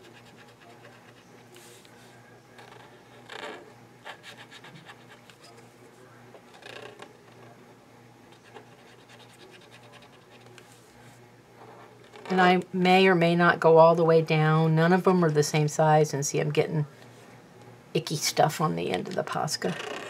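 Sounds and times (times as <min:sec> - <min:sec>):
low steady hum: 0:00.0 - 0:20.0
marker scratching on paper: 0:08.4 - 0:10.8.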